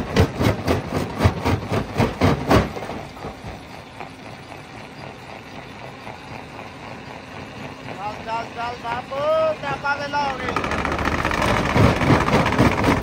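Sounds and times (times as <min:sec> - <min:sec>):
rock-crushing machinery banging: 0:00.0 - 0:03.4, 0:10.2 - 0:13.0
steady mechanical running: 0:00.0 - 0:13.0.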